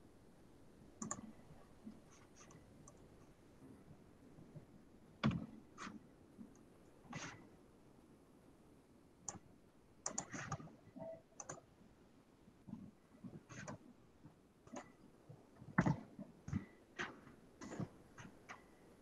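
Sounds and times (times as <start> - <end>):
keyboard and mouse clicks: 1.0 - 1.3, 10.0 - 11.7, 13.5 - 13.8.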